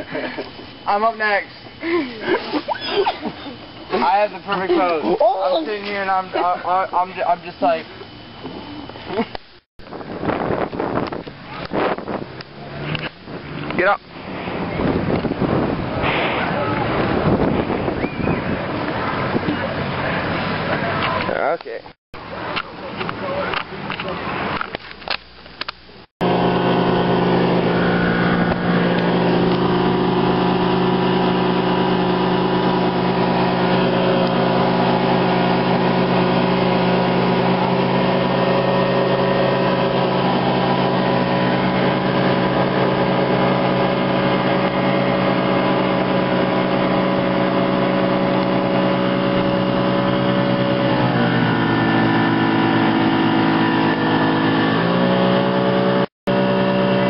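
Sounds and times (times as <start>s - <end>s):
outboard motor drone: 26.2s - 57.0s.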